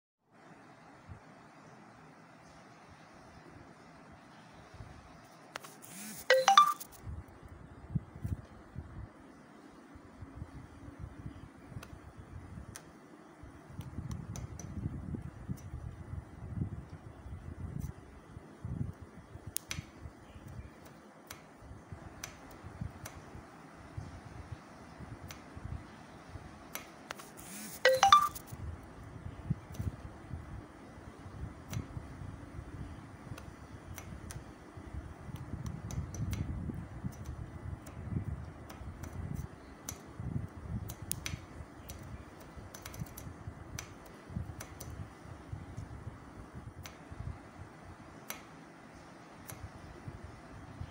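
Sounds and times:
sharp clicks: 19.4s - 21.6s, 26.7s - 28.5s, 35.3s - 36.5s, 40.8s - 45.0s, 48.2s - 48.5s.

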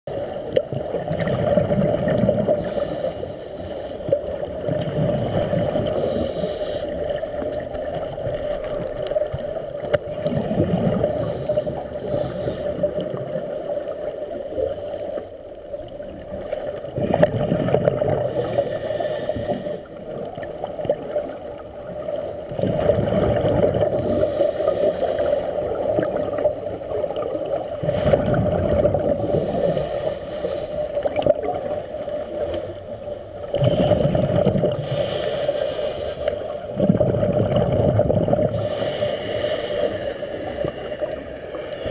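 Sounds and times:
exhaled bubbles gushing: 0.4s - 2.7s, 4.3s - 6.2s, 7.0s - 11.6s, 15.9s - 18.6s, 19.9s - 24.2s, 25.6s - 29.6s, 33.4s - 35.0s, 36.7s - 38.8s.

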